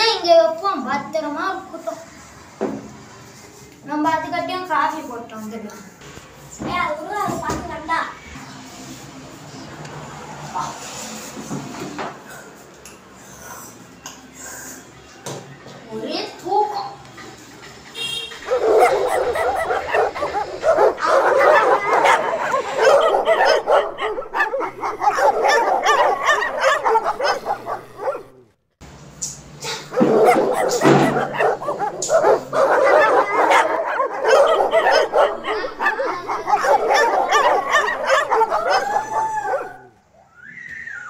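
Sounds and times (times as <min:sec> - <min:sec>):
dogs barking: 0:17.8 - 0:28.5, 0:29.8 - 0:40.0.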